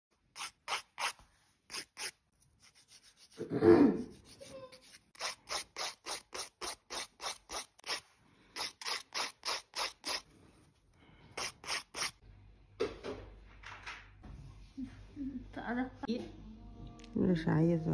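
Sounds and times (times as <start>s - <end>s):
nail file rasping on fingernails: 0.3s - 3.4s, 4.1s - 8.0s, 8.6s - 10.3s, 11.4s - 12.2s.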